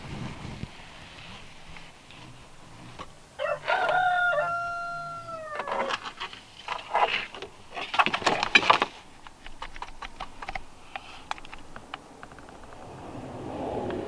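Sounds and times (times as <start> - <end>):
rooster crowing: 3.4 - 6.0
scratchy clattering: 5.6 - 12.9.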